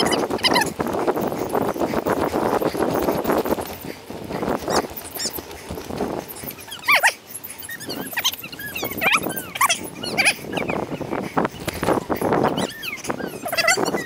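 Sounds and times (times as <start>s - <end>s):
high squeaky sliding chirps: 6.3s - 10.8s, 11.5s - 14.0s.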